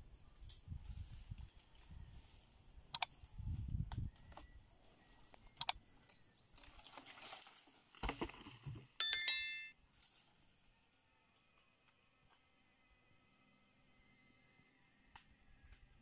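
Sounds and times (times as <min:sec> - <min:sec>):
faint outdoor rustling: 0:00.2 - 0:09.0, 0:09.8 - 0:10.6
bright bell chime: 0:09.0 - 0:09.8.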